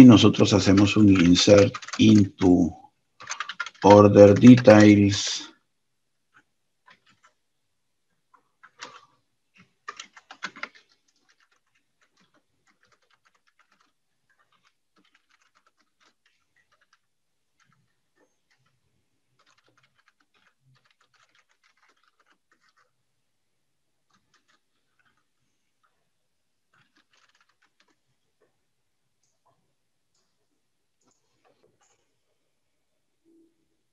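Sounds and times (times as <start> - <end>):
keyboard typing: 0.0 - 5.4, 6.3 - 7.4, 8.3 - 23.0, 24.1 - 26.0, 26.7 - 28.5.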